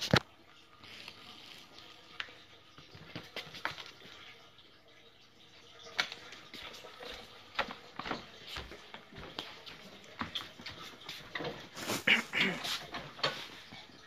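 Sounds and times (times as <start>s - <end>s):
faint handling clicks and knocks: 7.0s - 11.9s.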